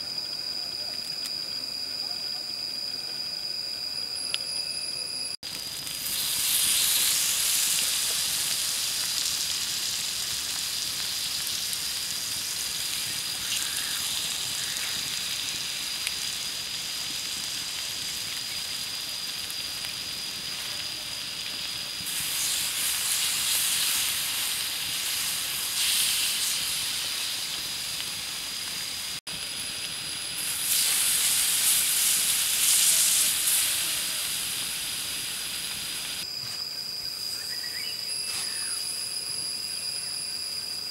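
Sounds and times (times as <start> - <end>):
squid sizzling on hot stone: 5.4 - 36.3.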